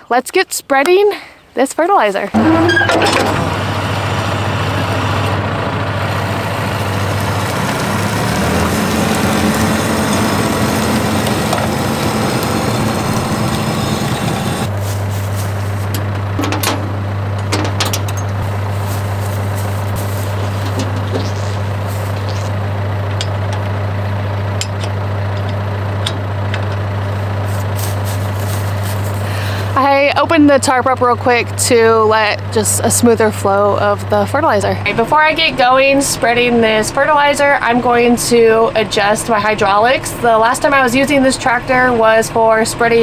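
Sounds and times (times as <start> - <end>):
tractor diesel engine idling: 2.4 - 43.0.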